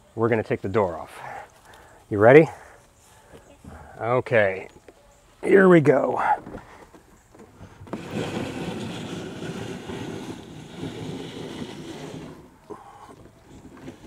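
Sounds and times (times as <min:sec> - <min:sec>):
door scraping along hinge rail: 0:07.6 - 0:12.6.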